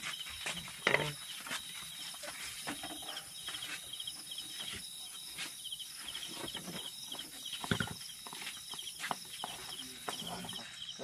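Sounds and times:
crickets chirping: 0.0s - 11.0s
high insect trill: 0.0s - 11.0s.

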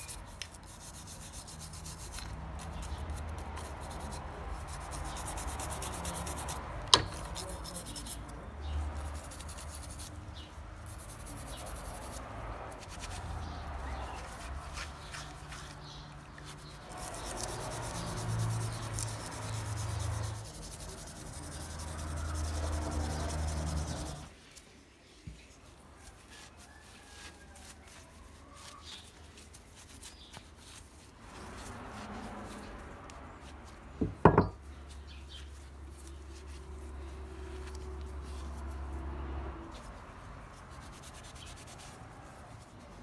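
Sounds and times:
brush scrubbing metal part: 0.0s - 24.3s.

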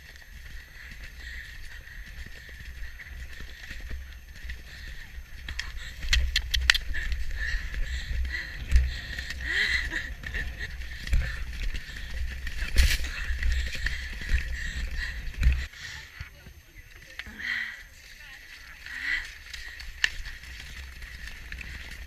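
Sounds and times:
hooves thudding: 0.0s - 15.7s, 16.4s - 22.0s
sharp clicks: 5.5s - 7.3s.

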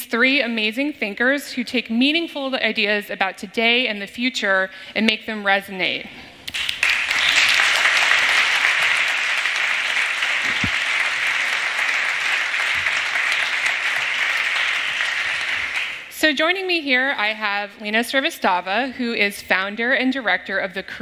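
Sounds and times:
audience applauding: 6.5s - 16.1s.

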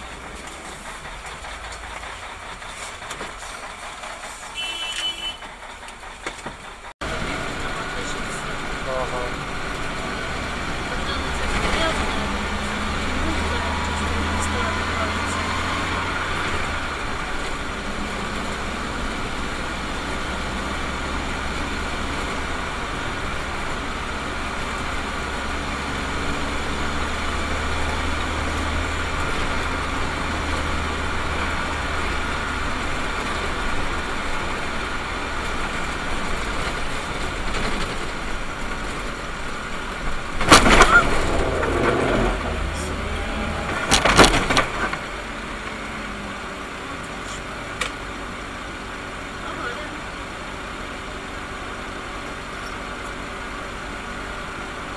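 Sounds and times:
car engine and tyres on wet road: 0.0s - 54.9s
loud sudden sounds: 40.2s - 45.5s.

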